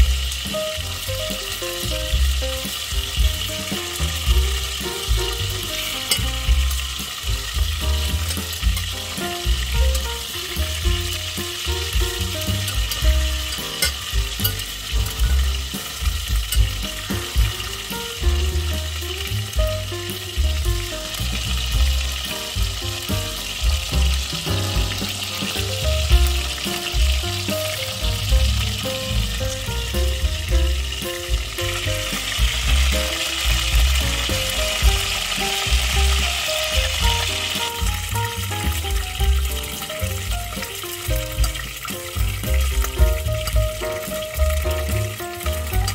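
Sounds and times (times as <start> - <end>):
chicken sizzling in hot oil: 0.0 - 45.9
spatula scraping and knocking pot: 10.8 - 17.8.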